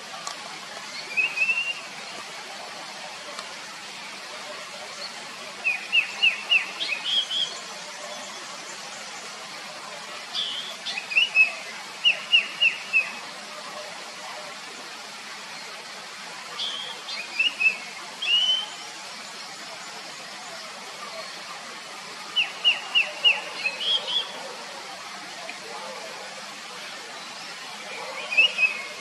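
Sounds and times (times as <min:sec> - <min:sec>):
bird singing whistled notes: 0:01.0 - 0:01.9, 0:05.6 - 0:07.6, 0:10.4 - 0:13.1, 0:16.6 - 0:18.8, 0:22.4 - 0:24.4, 0:28.2 - 0:28.9.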